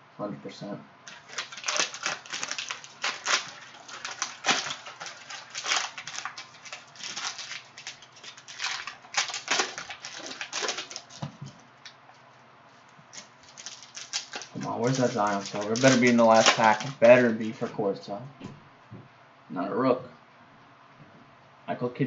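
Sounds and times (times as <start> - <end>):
cellophane wrapper crinkling: 1.1 - 12.0, 13.1 - 17.7.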